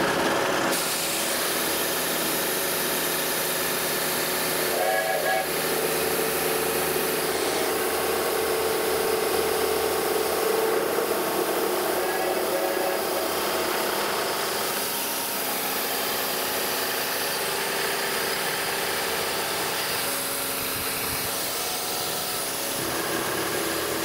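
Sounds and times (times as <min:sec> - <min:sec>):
milling machine cutting metal: 0:00.0 - 0:24.0
air hissing from nozzle: 0:00.7 - 0:13.5.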